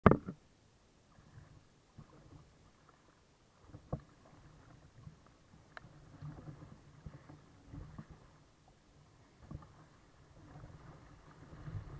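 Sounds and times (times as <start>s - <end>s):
water lapping against kayak hull: 0.1s - 11.9s.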